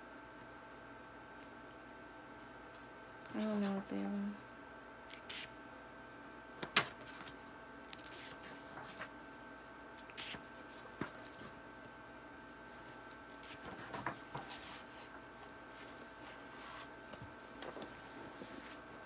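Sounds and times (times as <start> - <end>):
faint steady hum: 0.0 - 19.0
book pages rustling: 5.1 - 5.5, 6.6 - 9.2, 10.0 - 11.6, 12.8 - 18.9.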